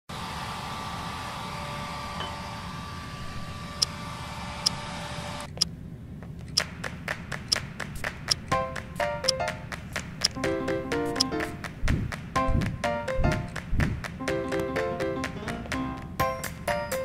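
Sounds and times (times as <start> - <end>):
steady hum and hiss: 2.8 - 17.0
clock-like ticking beat: 8.2 - 11.8.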